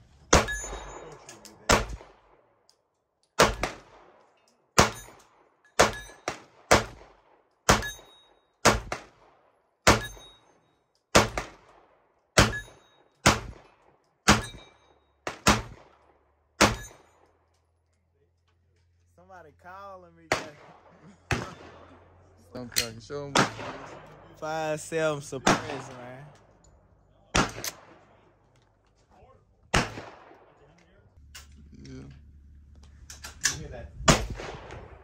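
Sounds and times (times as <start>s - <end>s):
gunshots with ringing tail: 0.3s - 2.6s, 3.4s - 17.3s, 20.2s - 26.4s, 27.3s - 28.4s, 29.7s - 30.6s, 34.0s - 35.0s.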